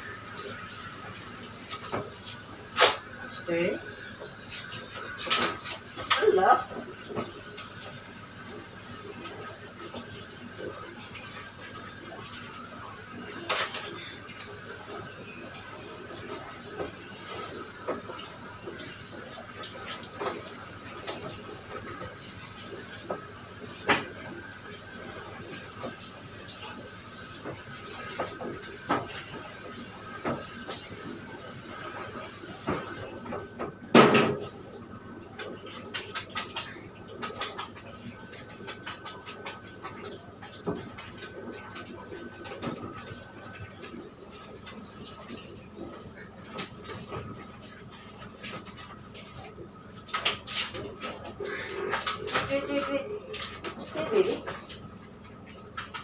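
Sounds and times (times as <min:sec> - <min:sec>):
shower sprayer hissing: 0:00.0 - 0:33.2.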